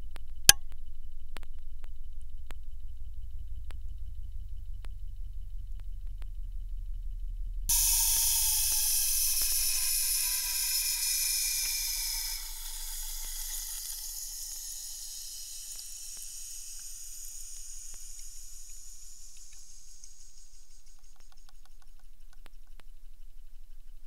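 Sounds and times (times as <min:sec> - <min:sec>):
high-pressure water hissing: 0:07.7 - 0:19.4.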